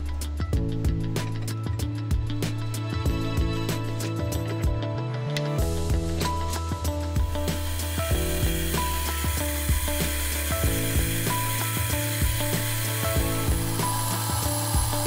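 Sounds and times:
milling machine motor hum: 0:06.2 - 0:15.0.

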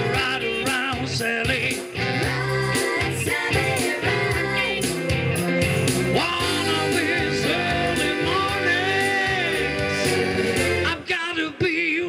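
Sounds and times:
man singing into microphone: 0:00.0 - 0:02.2, 0:06.2 - 0:12.0
amplified band playing: 0:00.0 - 0:11.1.

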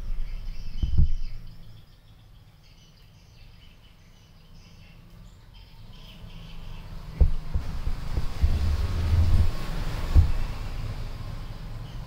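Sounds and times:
low thumps: 0:00.0 - 0:01.4, 0:07.1 - 0:10.7
faint high-pitched chirping: 0:00.0 - 0:07.6.

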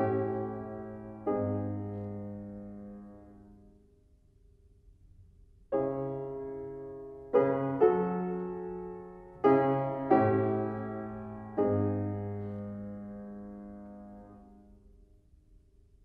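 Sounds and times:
slow piano chords: 0:00.0 - 0:04.0, 0:05.4 - 0:15.4.

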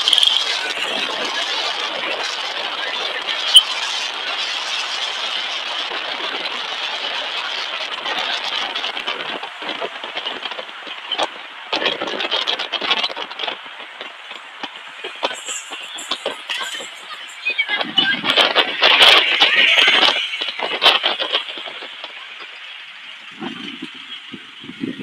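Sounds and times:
vehicle road and wind noise: 0:00.0 - 0:25.0.

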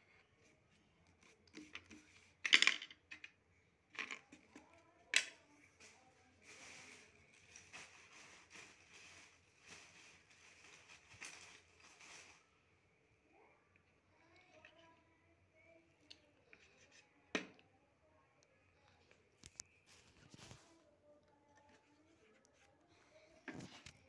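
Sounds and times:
objects clattering on wooden desk: 0:01.5 - 0:03.4, 0:04.0 - 0:04.6
paper rustling: 0:05.7 - 0:12.5.

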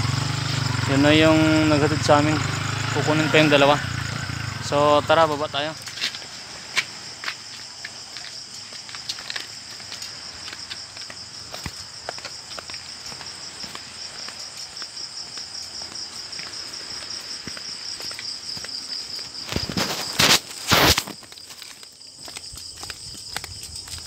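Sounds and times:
night insects chirping: 0:00.0 - 0:24.0
footsteps scuffing on concrete: 0:05.2 - 0:24.0
short bursts of rushing noise: 0:19.6 - 0:21.2.

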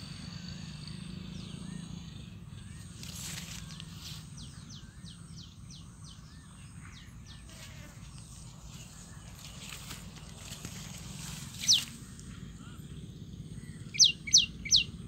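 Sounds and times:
faint chirps: 0:00.0 - 0:15.0
low steady rumble: 0:00.0 - 0:15.0
high downward-sweeping animal calls: 0:11.0 - 0:12.6, 0:13.5 - 0:15.0.

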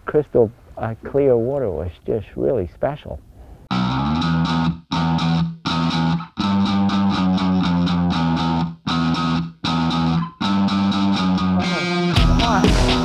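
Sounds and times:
rock music electric guitar chords: 0:03.7 - 0:13.0.

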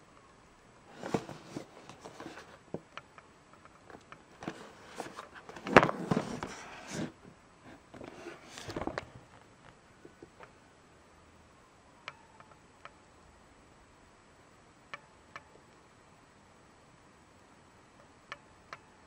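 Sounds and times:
cardboard box rubbing and scraping: 0:04.4 - 0:07.2.

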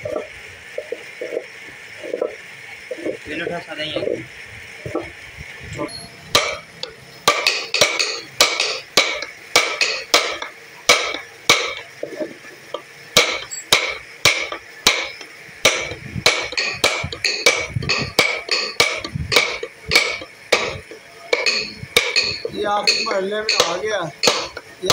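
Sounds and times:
mallet tapping steel chisel: 0:06.4 - 0:12.2, 0:13.2 - 0:24.9.

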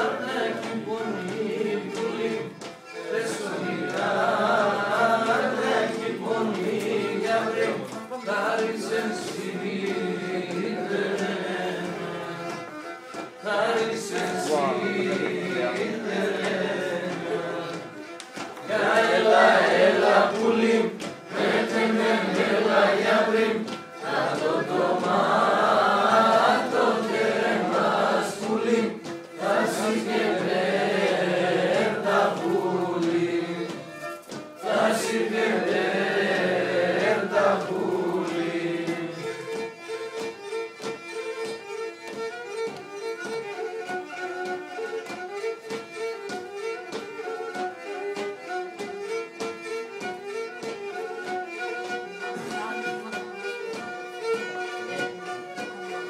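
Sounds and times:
people singing together: 0:00.0 - 0:40.3
fiddle playing: 0:00.0 - 0:56.0.

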